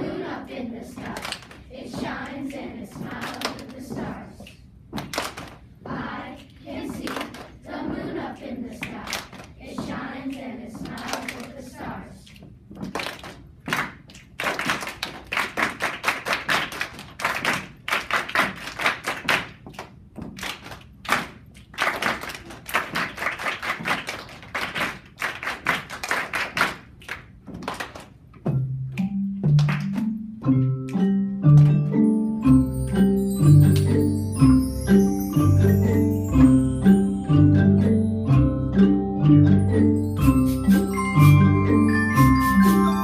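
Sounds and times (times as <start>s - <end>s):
group clapping and body percussion: 0.1s - 38.7s, 39.5s - 43.0s
bass xylophones playing low notes: 28.5s - 43.0s.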